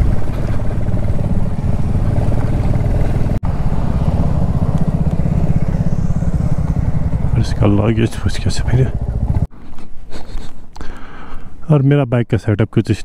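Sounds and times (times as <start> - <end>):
motorcycle engine running: 0.0 - 9.5.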